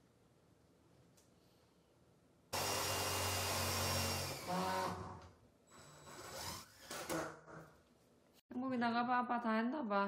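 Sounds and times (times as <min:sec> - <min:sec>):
power tool running: 0:02.6 - 0:05.2.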